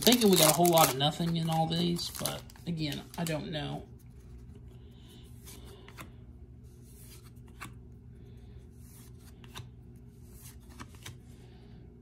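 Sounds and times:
cards sliding and clicking: 5.4 - 7.8, 8.8 - 11.3.

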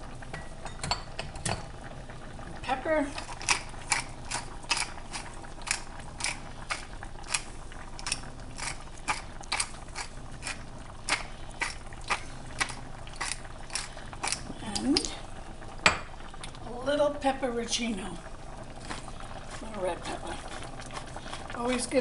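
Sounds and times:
pepper mill grinder clicking: 3.2 - 11.8.

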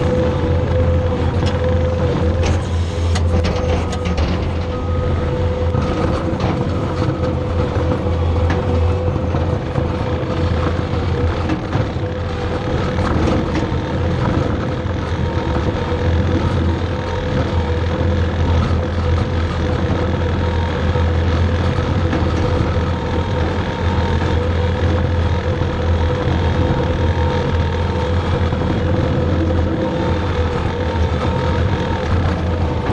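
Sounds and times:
diesel engine running: 0.0 - 32.9
faint rattles and clicks: 1.4 - 5.0.

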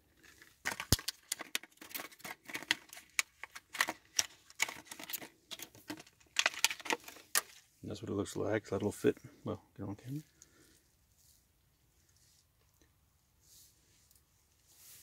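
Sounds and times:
plastic packaging crackling: 0.4 - 7.6.

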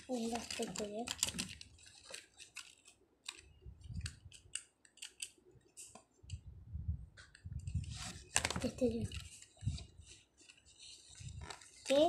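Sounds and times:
toy car and box clicking and rustling: 0.1 - 5.4, 8.3 - 9.7.

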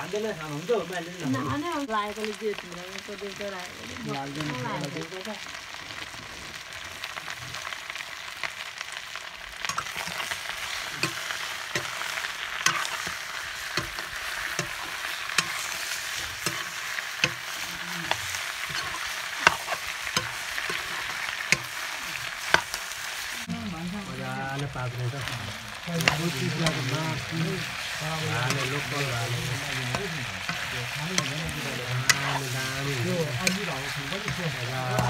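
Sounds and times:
chicken sizzling in hot oil: 0.0 - 35.0
metal spatula scraping a wok: 9.6 - 23.0, 27.6 - 35.0.

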